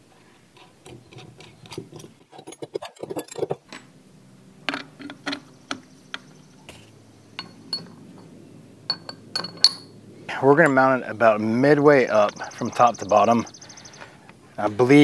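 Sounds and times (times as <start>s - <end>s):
metal brackets and bolts clinking: 4.7s - 5.8s, 7.4s - 10.0s, 10.6s - 11.0s.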